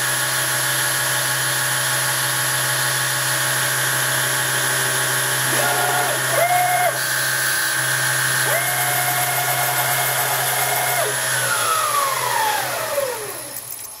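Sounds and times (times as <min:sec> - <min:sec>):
spindle motor whine: 0:04.3 - 0:14.0
servo axes whining: 0:05.4 - 0:07.2, 0:08.3 - 0:14.0.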